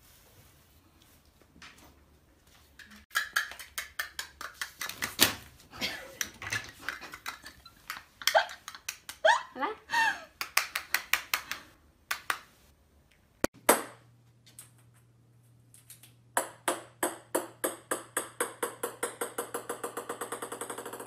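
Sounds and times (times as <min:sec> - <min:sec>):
ball bouncing on hard floor: 0:16.4 - 0:21.0.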